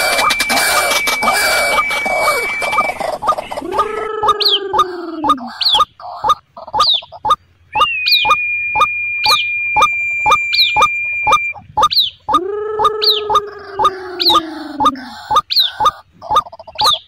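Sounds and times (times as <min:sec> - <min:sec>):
steady high tone: 0:00.0 - 0:05.5, 0:07.8 - 0:15.4
bird calling sharp notes: 0:00.0 - 0:17.0.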